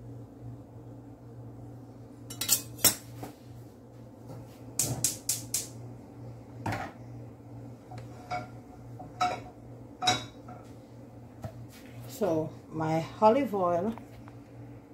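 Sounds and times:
steady low hum: 0.0s - 14.9s
metallic clinks of kitchenware: 2.3s - 3.0s.

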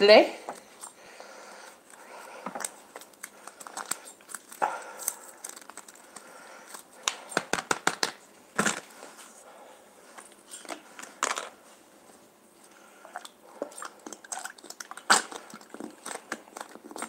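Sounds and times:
crunchy handling noises: 0.5s - 17.0s
packet crinkling and tearing: 2.6s - 8.8s, 13.8s - 17.0s.

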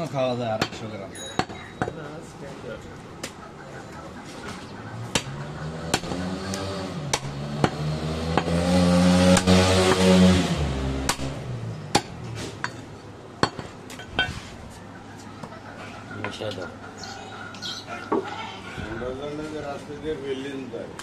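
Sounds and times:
cleaver chopping meat and bone: 0.5s - 2.0s, 5.0s - 10.1s, 11.0s - 12.2s
engine passing: 3.5s - 12.7s.

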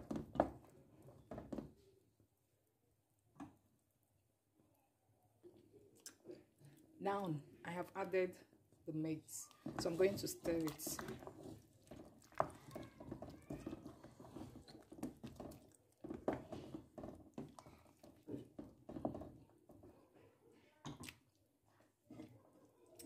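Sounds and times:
spoon stirring thick soup: 8.5s - 23.0s.

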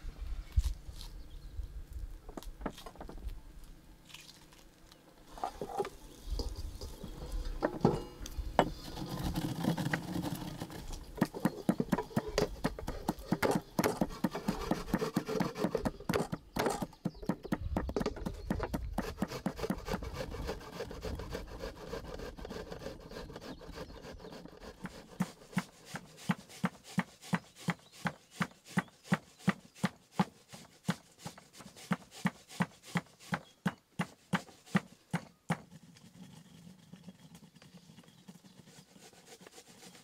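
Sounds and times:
rubbing and scraping on board: 8.6s - 40.0s.

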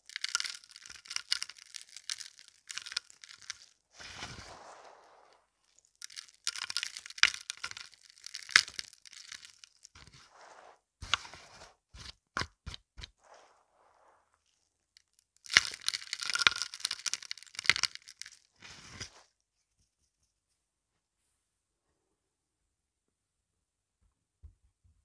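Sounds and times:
shells and pebbles crunching: 0.0s - 19.2s.

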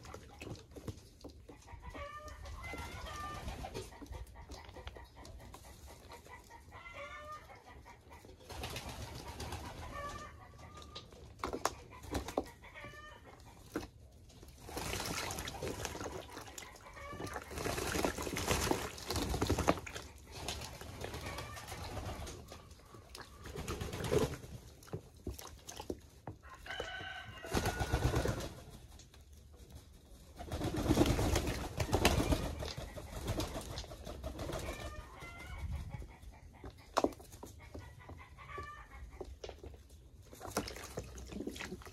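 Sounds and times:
splashing and wing-flapping in water: 14.5s - 26.0s, 27.4s - 28.8s, 30.5s - 35.0s, 40.4s - 41.9s.

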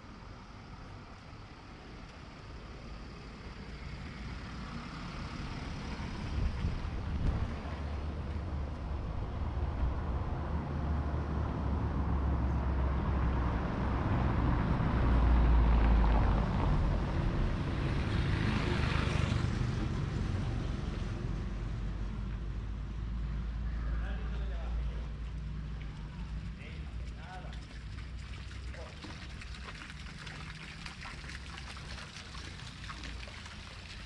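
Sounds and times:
vehicle rumbling on cobblestones: 1.5s - 34.0s.

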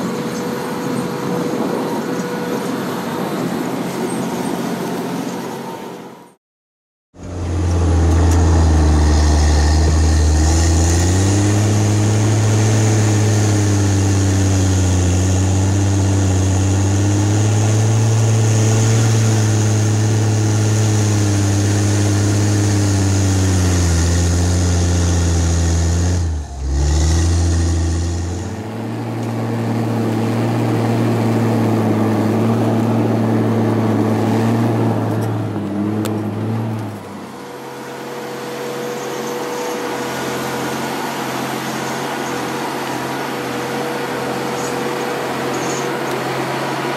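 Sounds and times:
diesel engine running under load: 7.2s - 46.9s.

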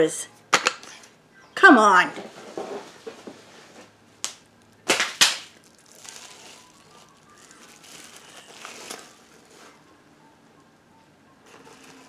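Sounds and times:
packaging crackling rustles: 2.6s - 9.8s, 11.5s - 12.0s
packaging snapping: 4.2s - 9.2s.

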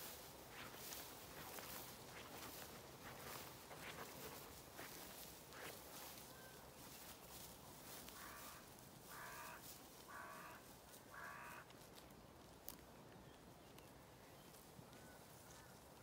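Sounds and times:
wind hissing in grass: 0.0s - 10.4s
crow cawing: 8.1s - 11.7s.

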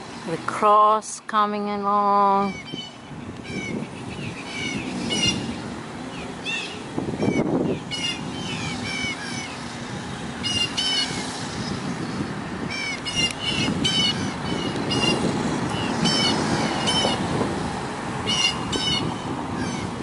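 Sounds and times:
bird alarm calls: 2.4s - 9.7s, 10.4s - 11.8s, 12.7s - 17.3s, 18.2s - 20.0s.

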